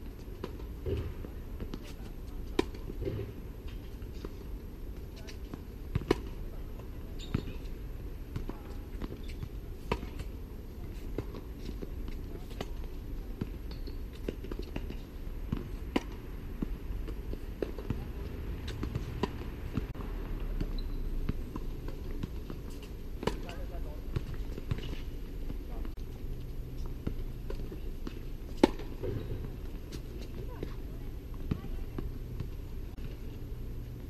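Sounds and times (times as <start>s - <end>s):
tennis ball bouncing: 5.2s - 20.0s, 20.6s - 26.0s, 26.6s - 34.0s
racket striking tennis ball: 17.6s - 19.9s, 27.0s - 30.8s.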